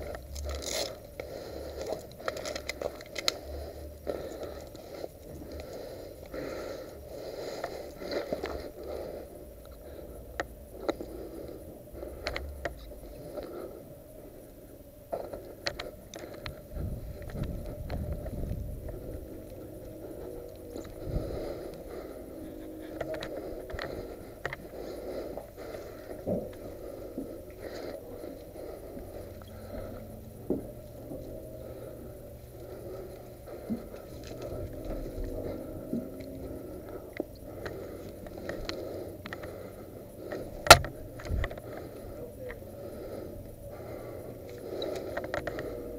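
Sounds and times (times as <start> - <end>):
steady low rumble: 0.0 - 45.9
wind rumble on microphone: 16.4 - 21.9
faint clicks: 32.6 - 39.7, 43.4 - 45.9.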